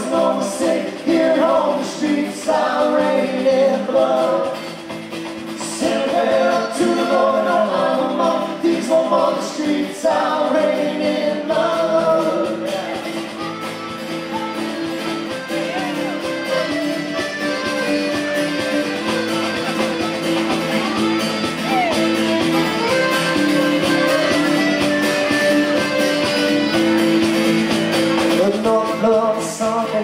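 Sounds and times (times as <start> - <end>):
folk-rock band playing: 0.0 - 30.0
person singing: 5.6 - 16.8, 28.2 - 30.0.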